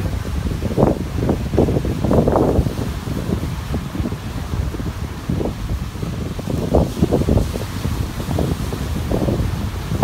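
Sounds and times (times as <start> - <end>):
surf breaking on beach: 0.0 - 10.0
wind buffeting microphone: 0.0 - 10.0.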